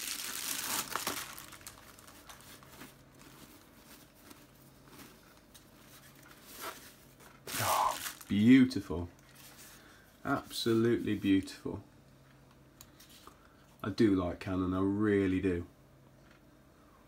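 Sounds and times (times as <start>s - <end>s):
bubble wrap crinkling: 0.0s - 9.9s.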